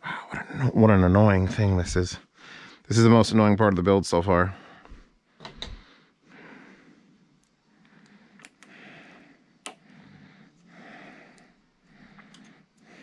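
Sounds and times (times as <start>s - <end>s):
person breathing through nose: 5.8s - 13.0s.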